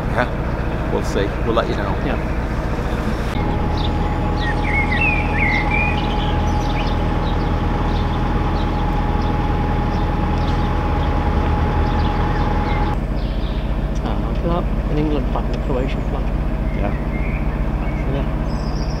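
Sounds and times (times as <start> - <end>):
boat diesel engine running: 0.0 - 19.0
thin steady whine: 0.0 - 19.0
small bird chirping: 3.6 - 14.2, 16.6 - 19.0.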